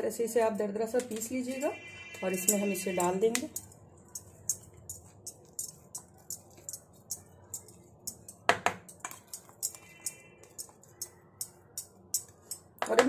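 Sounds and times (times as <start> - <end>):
spatula scraping in metal jar: 1.4 - 11.5.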